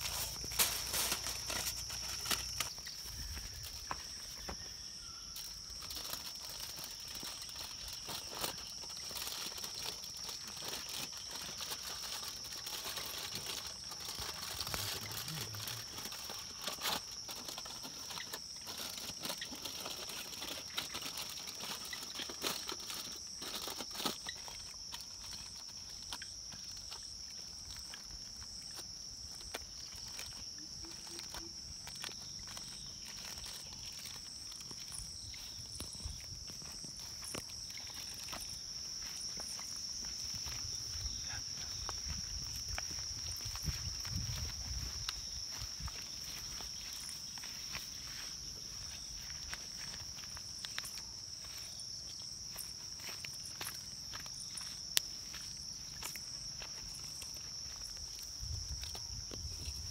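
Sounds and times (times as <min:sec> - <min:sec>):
aluminium foil crinkling: 0:00.0 - 0:03.9, 0:05.4 - 0:40.6.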